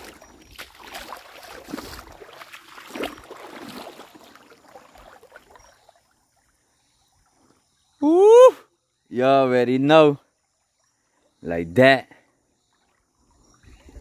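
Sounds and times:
footsteps wading through water: 0.0 - 6.2
water splashing and sloshing: 0.0 - 8.0.

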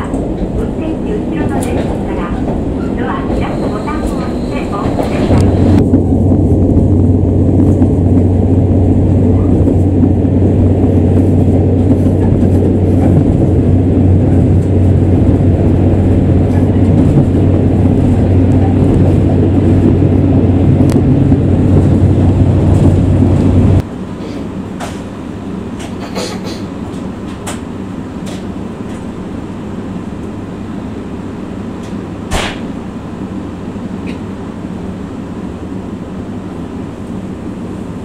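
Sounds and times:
diesel engine humming: 0.0 - 25.8.

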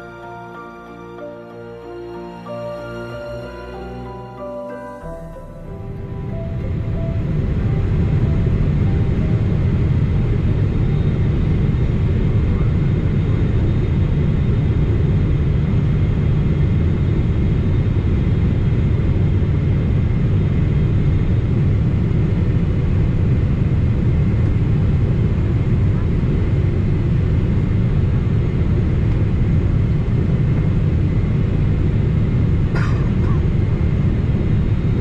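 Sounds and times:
music: 0.0 - 12.2
airliner low rumble: 0.0 - 35.0.

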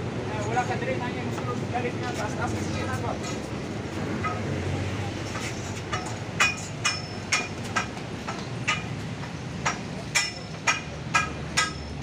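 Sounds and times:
metal pipes being struck: 5.9 - 9.0, 9.6 - 12.0.

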